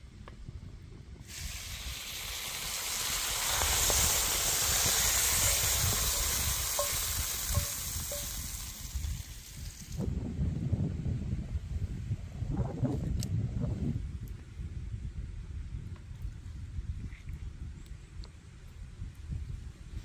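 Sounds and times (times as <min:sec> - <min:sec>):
fish sizzling in a pan: 0:01.3 - 0:10.0.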